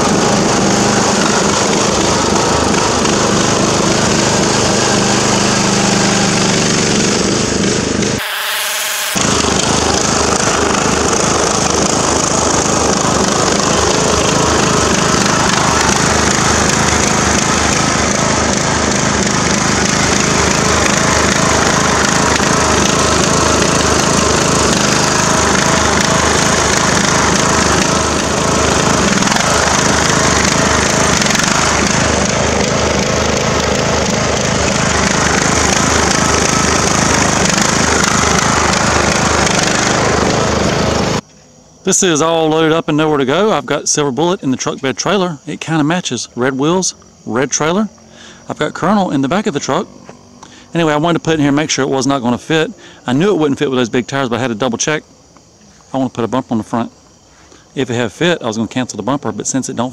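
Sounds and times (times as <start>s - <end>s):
tires churning mud and water: 0.0s - 8.2s, 9.2s - 41.2s
riding mower engine running: 0.0s - 59.9s.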